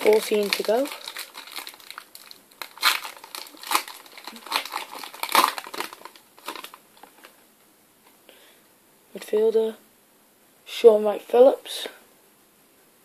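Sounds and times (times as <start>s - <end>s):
foil packet crinkling: 0.0s - 7.3s.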